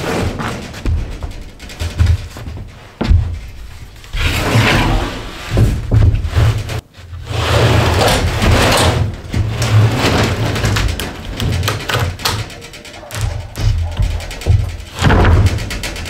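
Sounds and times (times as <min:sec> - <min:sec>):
plywood scraping across wooden floor: 0:00.0 - 0:11.6
wood knocks: 0:00.2 - 0:04.1, 0:10.5 - 0:16.0.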